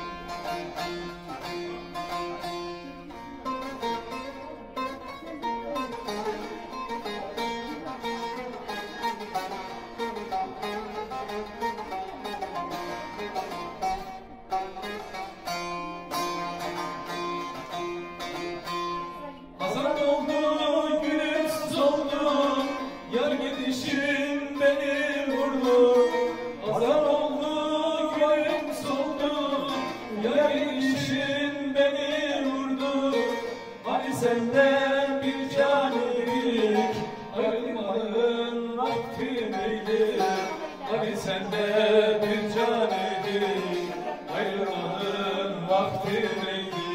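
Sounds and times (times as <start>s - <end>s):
man singing folk song: 0.0s - 15.5s, 16.1s - 46.9s
long-necked lute strummed: 0.0s - 46.9s.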